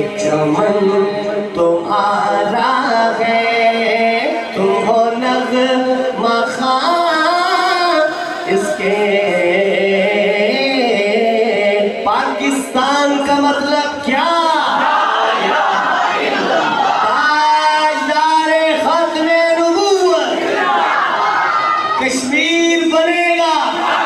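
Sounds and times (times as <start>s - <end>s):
man singing into a microphone: 0.0s - 14.8s, 17.0s - 20.4s, 22.0s - 23.8s.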